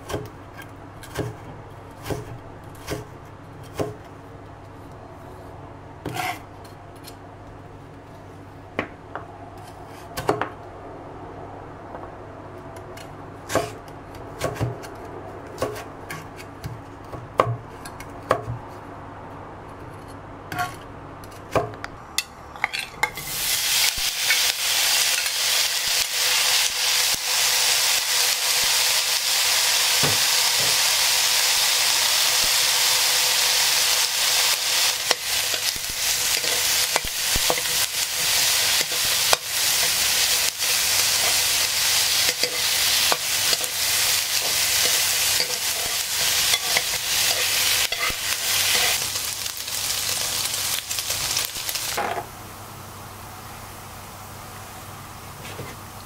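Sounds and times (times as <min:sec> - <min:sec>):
knife chopping on cutting board: 0:13.5 - 0:13.8
pork sizzling in a wok: 0:22.6 - 0:56.0.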